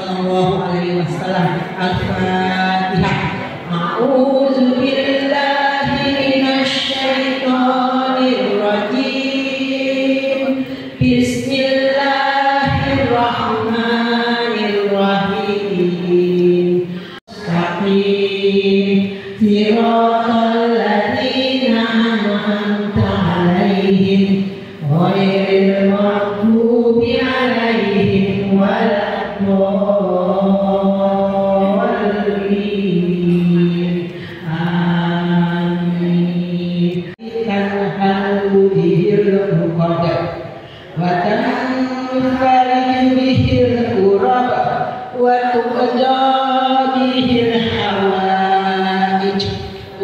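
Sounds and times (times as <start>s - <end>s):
women chanting devotional song: 0.0s - 50.0s.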